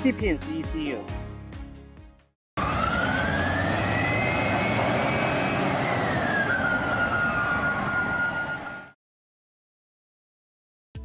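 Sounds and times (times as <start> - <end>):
rushing roar with whine: 2.6 - 9.0.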